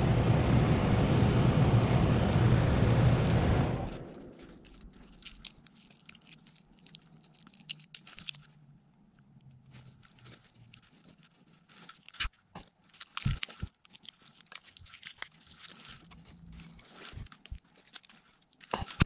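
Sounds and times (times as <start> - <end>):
loud rushing noise: 0.0 - 4.3
metal parts clicking: 4.2 - 8.5, 12.9 - 19.0.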